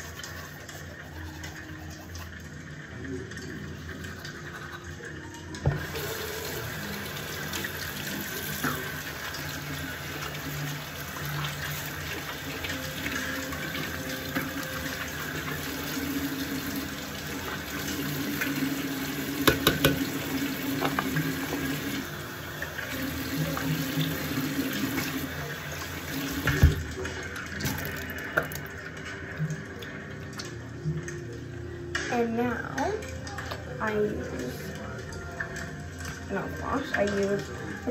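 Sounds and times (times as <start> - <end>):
tap running into sink: 5.6 - 6.6, 19.3 - 22.0, 26.1 - 28.7
knocks and clicks around sink: 19.4 - 21.8.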